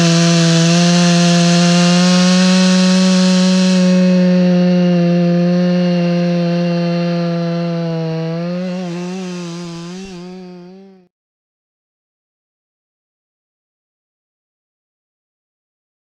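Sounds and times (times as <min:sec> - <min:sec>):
chainsaw running at high revs: 0:00.0 - 0:11.1.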